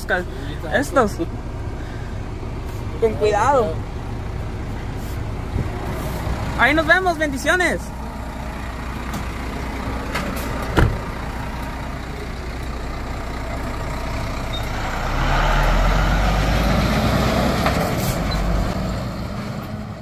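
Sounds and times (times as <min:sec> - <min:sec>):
truck diesel engine running: 0:00.0 - 0:20.0
cab door shutting: 0:10.1 - 0:11.2.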